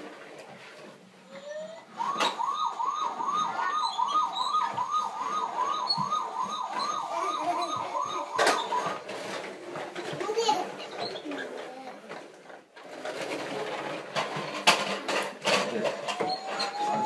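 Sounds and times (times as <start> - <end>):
toy siren wailing: 1.2 - 9.4, 16.1 - 17.0.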